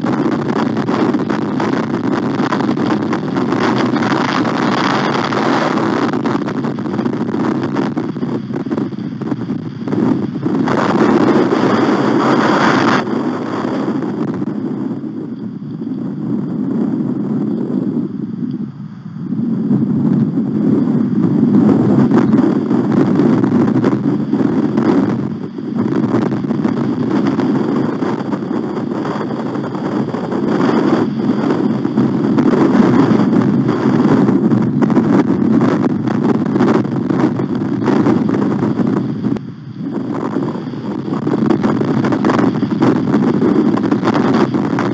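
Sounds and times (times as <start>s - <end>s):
wind buffeting microphone: 0.0s - 44.9s.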